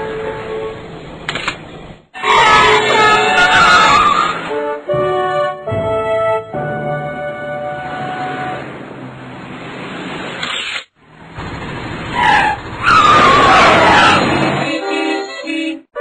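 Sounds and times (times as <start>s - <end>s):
wavering tyre screech: 2.2s - 4.6s, 11.7s - 14.7s.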